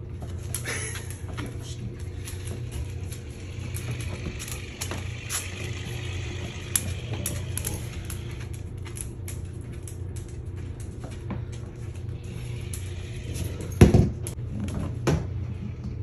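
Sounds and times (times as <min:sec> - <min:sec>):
low hum: 0:00.0 - 0:16.0
dog claws clicking on hard floor: 0:00.2 - 0:14.8.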